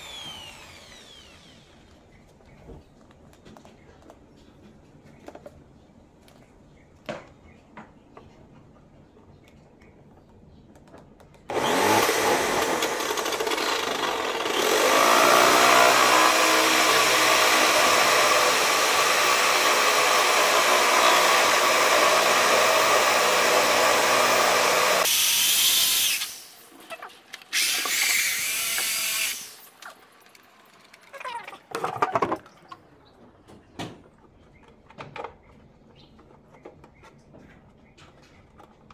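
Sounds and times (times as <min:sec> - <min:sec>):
electric drill boring: 0:00.0 - 0:02.0, 0:11.5 - 0:26.6, 0:27.5 - 0:29.7.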